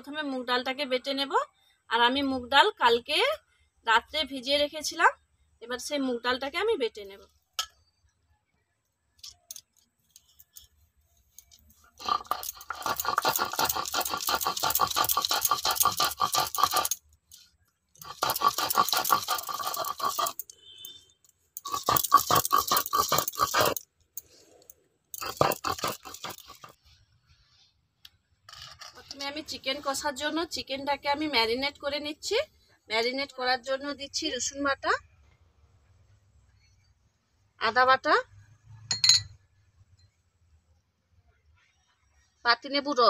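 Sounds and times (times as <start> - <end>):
stone scraping on stone: 11.4 - 26.9, 28.5 - 29.6.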